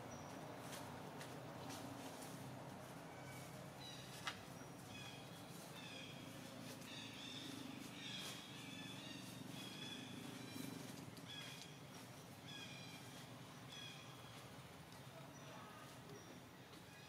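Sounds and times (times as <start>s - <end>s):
birds calling: 1.6s - 14.6s.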